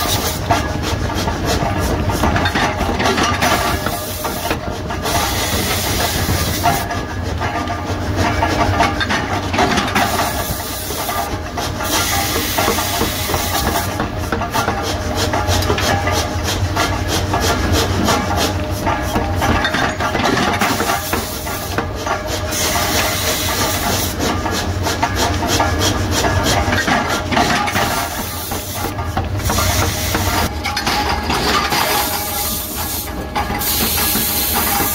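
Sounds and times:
forging press mechanical din: 0:00.0 - 0:34.9
hiss: 0:31.9 - 0:34.9.

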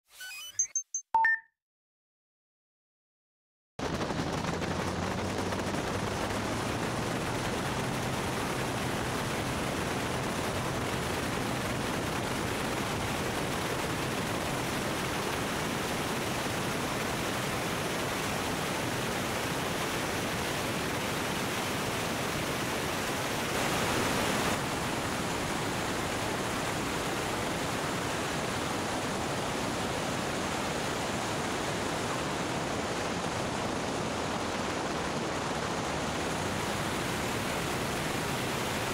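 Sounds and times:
airplane engine drone: 0:03.8 - 0:11.2.

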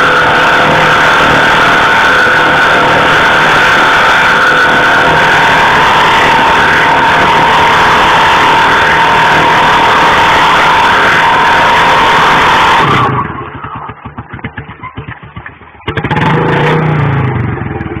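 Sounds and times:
tyre screeching: 0:00.0 - 0:14.1
motorcycle engine revving: 0:00.0 - 0:18.0.

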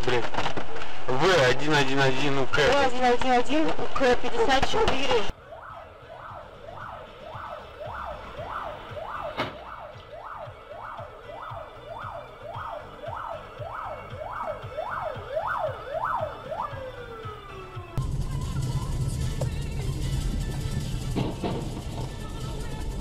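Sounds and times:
police siren wailing: 0:04.6 - 0:23.0.

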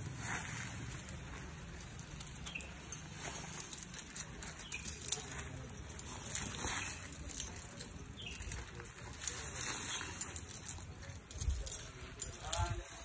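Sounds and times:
iron chains clinking: 0:00.0 - 0:13.0.

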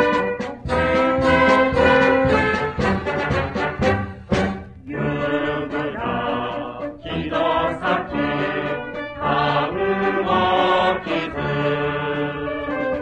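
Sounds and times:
brass band playing: 0:00.0 - 0:13.0
mixed choir singing: 0:04.8 - 0:13.0.

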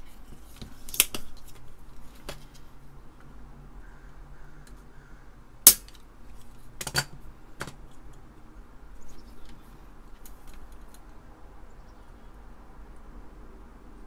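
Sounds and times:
desoldering pump snapping: 0:00.9 - 0:01.4, 0:05.7 - 0:06.0.

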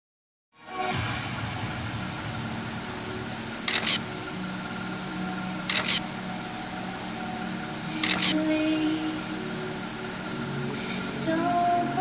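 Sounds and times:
background hum: 0:01.0 - 0:12.0
camera shutter clicks: 0:03.7 - 0:04.0, 0:05.7 - 0:06.0, 0:08.0 - 0:08.4.

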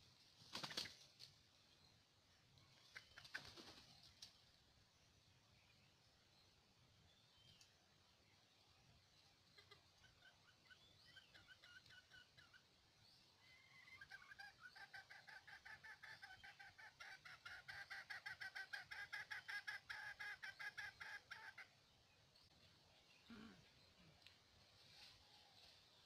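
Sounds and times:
junglefowl clucking: 0:09.4 - 0:12.6, 0:13.5 - 0:21.7.

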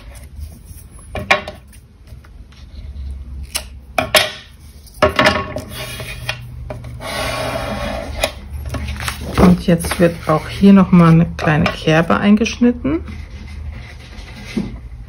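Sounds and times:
card rustling: 0:08.6 - 0:11.2.

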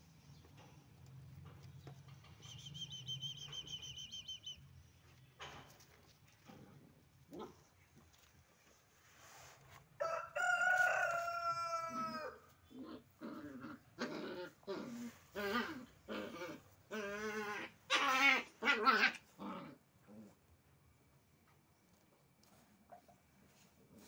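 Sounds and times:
rooster crowing: 0:10.0 - 0:12.5.

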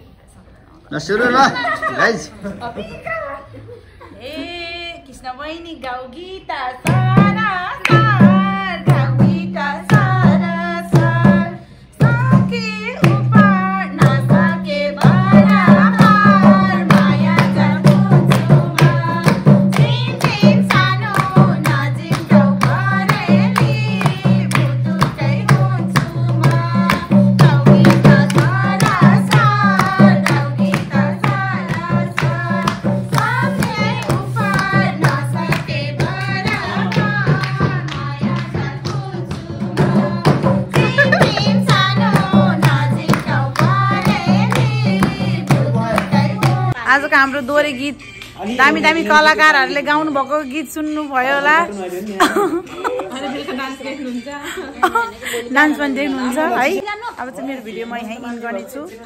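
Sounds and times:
steady drum beat: 0:06.9 - 0:46.8
group singing folk song: 0:06.9 - 0:46.9
hand clapping: 0:13.0 - 0:13.4, 0:15.0 - 0:46.7.

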